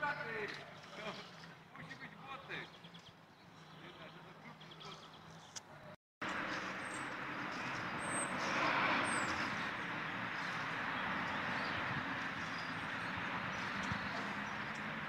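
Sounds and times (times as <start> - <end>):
outdoor rushing noise: 6.2 - 15.0.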